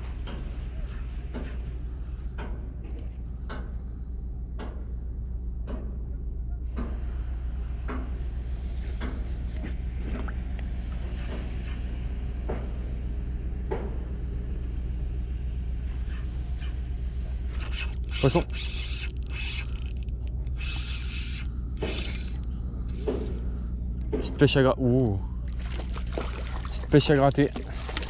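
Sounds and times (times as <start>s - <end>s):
low rumble: 0.0s - 28.0s
fishing reel clicks and taps: 17.6s - 23.4s.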